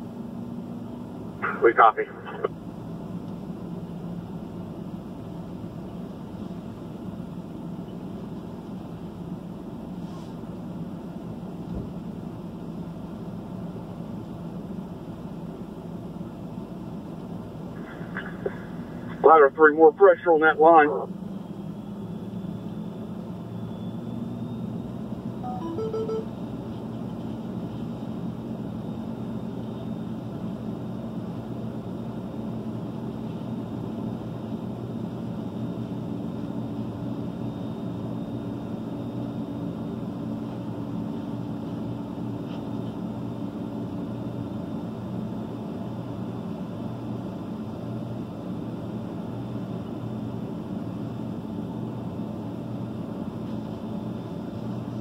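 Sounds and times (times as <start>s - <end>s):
vehicle engines idling: 0.0s - 55.0s
electronic beeps: 25.4s - 26.3s.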